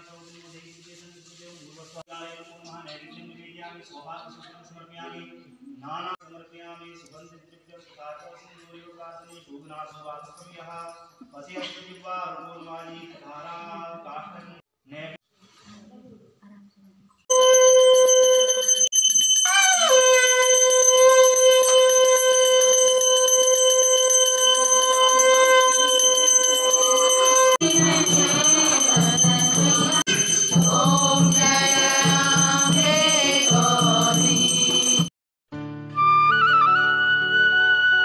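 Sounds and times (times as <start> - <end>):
person singing: 24.6 - 34.5
regular drum beat: 27.6 - 34.9.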